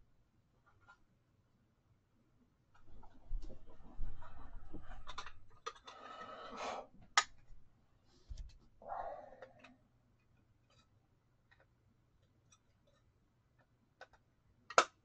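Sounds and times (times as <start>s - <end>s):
brief voice-like sound: 8.8s - 9.7s.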